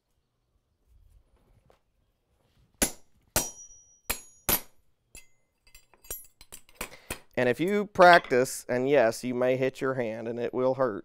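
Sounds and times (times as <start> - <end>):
hammer striking metal punch: 2.8 - 5.4.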